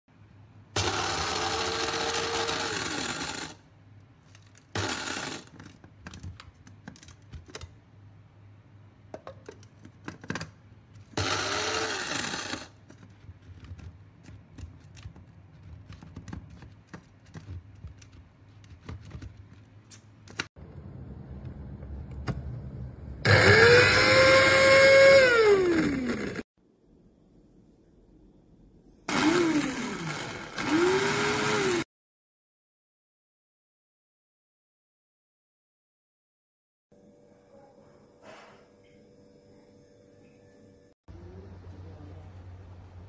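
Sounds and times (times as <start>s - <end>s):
coffee grinder motor running: 0.8s - 3.6s, 4.8s - 5.5s, 11.2s - 12.8s, 23.2s - 26.4s, 29.1s - 31.9s.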